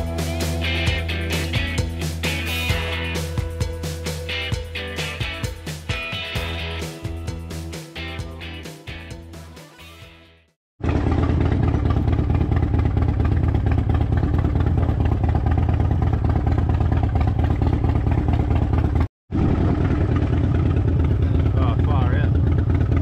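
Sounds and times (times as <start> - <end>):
motorcycle engine rumbling: 10.8 - 23.0.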